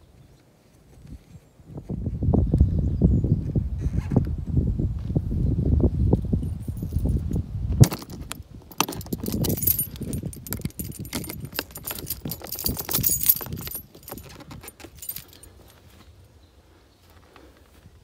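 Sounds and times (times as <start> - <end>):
keys jangling against metal latch: 6.4 - 15.6.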